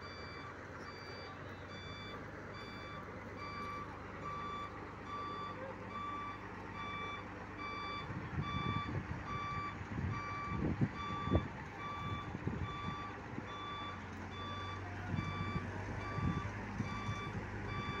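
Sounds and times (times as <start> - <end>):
diesel engine running: 0.0 - 18.0
low rumbles: 0.0 - 18.0
vehicle warning beeper: 0.0 - 18.0.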